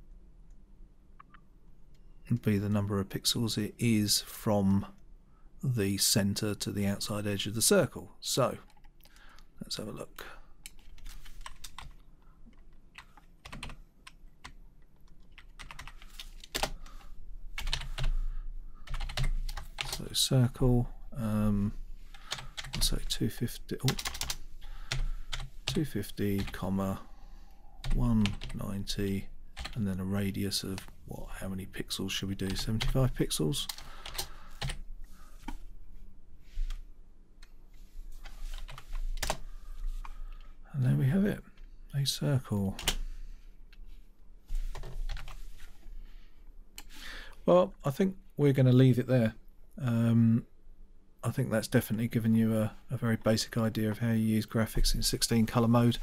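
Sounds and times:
computer keyboard keystrokes: 10.6s - 17.0s, 18.9s - 20.0s, 23.9s - 25.5s.

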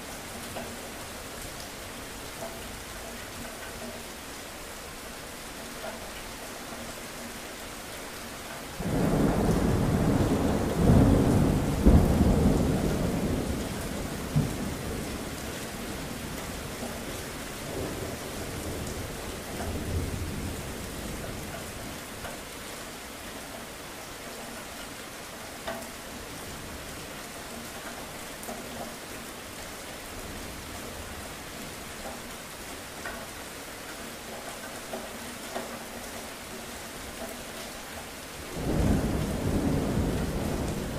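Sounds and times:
steady rain: 0.0s - 40.9s
thunder rumbling and cracking: 8.8s - 16.8s, 38.5s - 40.9s.

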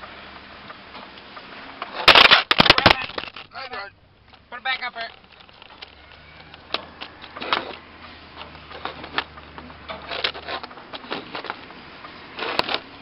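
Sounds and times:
irregular clicks and knocks: 4.2s - 13.0s.

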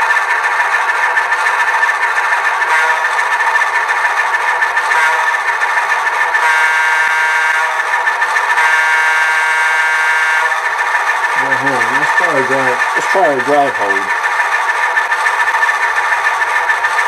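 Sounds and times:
diesel engine idling through small speaker: 0.0s - 6.4s, 10.5s - 17.0s.

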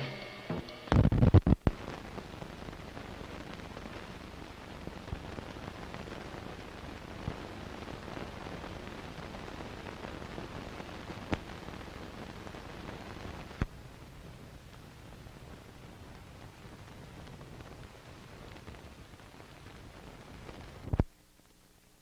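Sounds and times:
film soundtrack thumps and pops: 0.0s - 1.8s
steady hiss: 0.0s - 22.0s.

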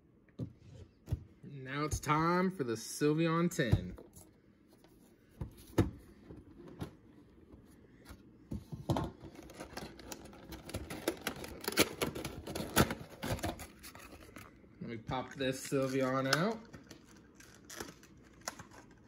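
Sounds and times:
plastic scraping and rustling: 8.6s - 14.6s.

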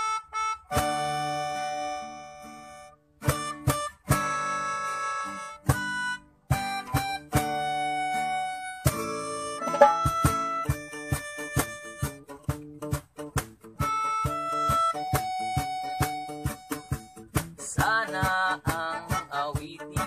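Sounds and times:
short plucked notes: 9.6s - 10.4s
ringing held chords: 9.7s - 10.2s.

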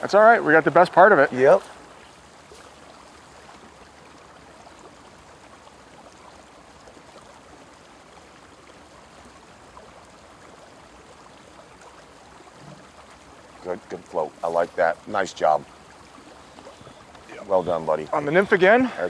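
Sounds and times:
flowing river water: 0.0s - 19.0s.

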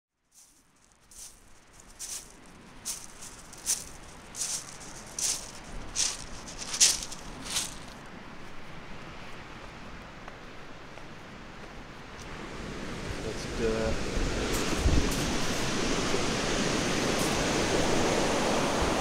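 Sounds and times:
shaker rattle: 0.4s - 8.0s.

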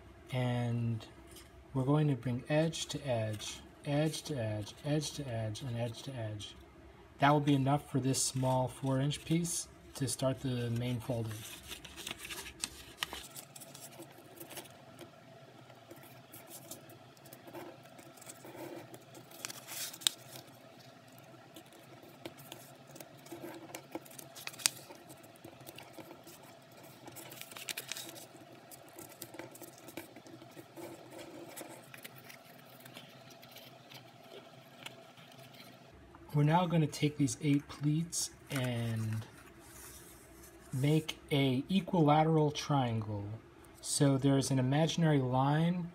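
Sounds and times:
paper rustling being folded: 10.0s - 15.1s, 15.7s - 35.8s, 36.7s - 41.1s
paper clicks: 15.8s - 35.8s.

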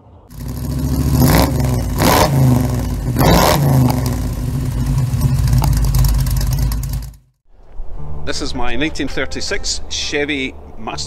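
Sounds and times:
car engine revving: 0.3s - 7.2s.

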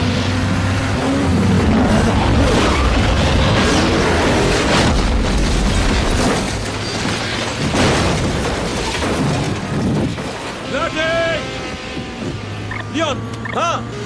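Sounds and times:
car rolling over crunching: 1.6s - 11.4s.

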